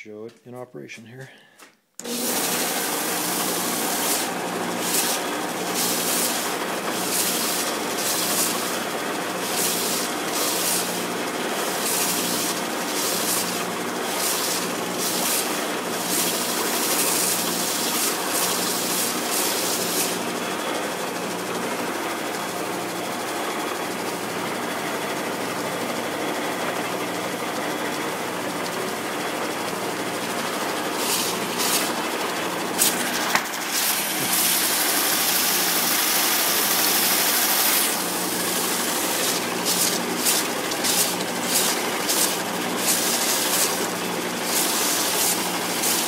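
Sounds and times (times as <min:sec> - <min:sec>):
belt sander motor running: 0:02.0 - 0:46.0
gritty sanding hiss: 0:38.5 - 0:46.0.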